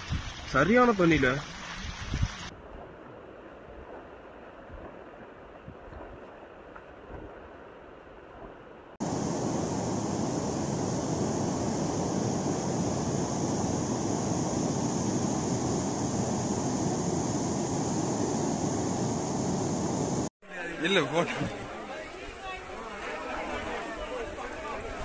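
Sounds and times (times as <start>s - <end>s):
water flowing through street: 0.0s - 7.9s, 20.4s - 25.0s.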